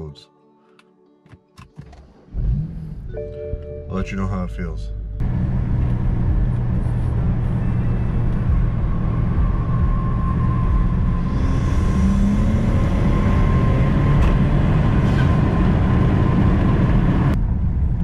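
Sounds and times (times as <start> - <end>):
car engine accelerating hard: 2.2 - 3.1, 5.2 - 18.0.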